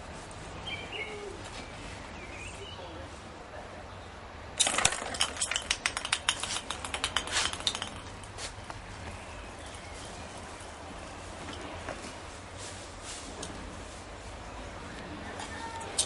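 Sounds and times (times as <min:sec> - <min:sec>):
ping-pong balls bouncing on stone floor: 0:04.6 - 0:08.3.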